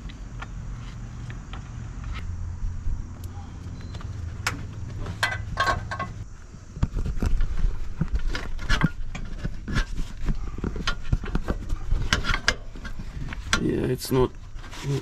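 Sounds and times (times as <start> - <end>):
low hum: 0.0 - 13.6.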